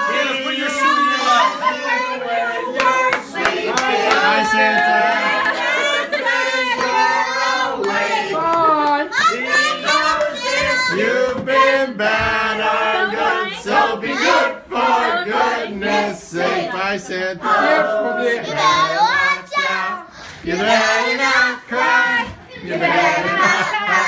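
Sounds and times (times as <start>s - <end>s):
group singing together: 0.0s - 24.0s
hand-clapping: 2.8s - 5.6s, 7.8s - 9.1s.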